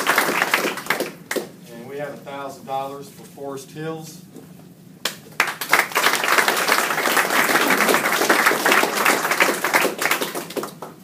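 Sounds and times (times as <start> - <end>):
small audience applauding: 0.0 - 1.5, 5.0 - 11.0.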